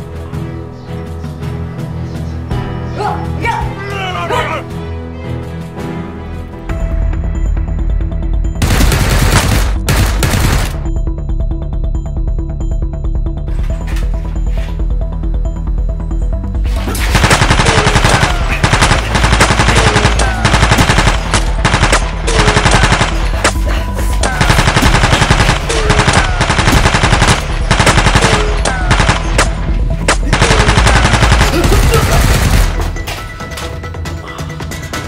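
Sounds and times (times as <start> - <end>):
machine-gun sound effect: 8.6 - 10.8, 17.1 - 23.5, 24.3 - 29.5, 30.3 - 32.9.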